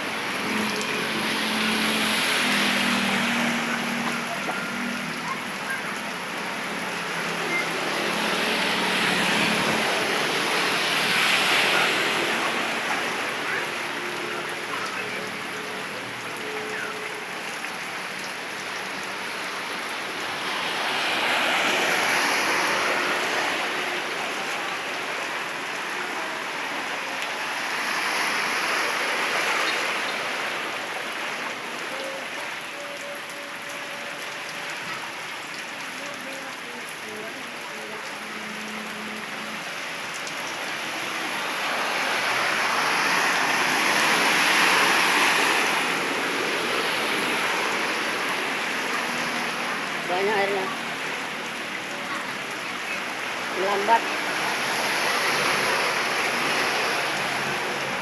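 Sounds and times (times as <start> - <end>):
heavy rain: 0.0 - 58.0
wash of floodwater: 0.0 - 58.0.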